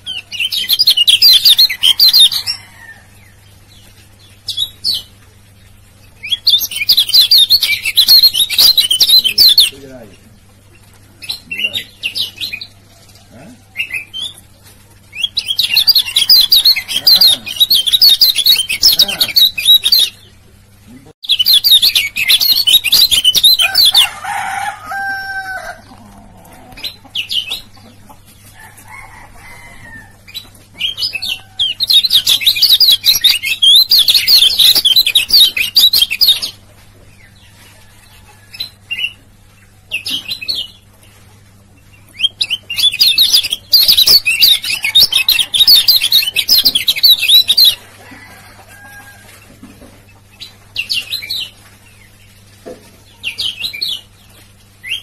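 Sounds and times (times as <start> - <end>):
bird chattering twitter: 6.2 - 9.9, 15.2 - 20.3, 21.2 - 24.0, 30.8 - 36.6, 42.2 - 47.8.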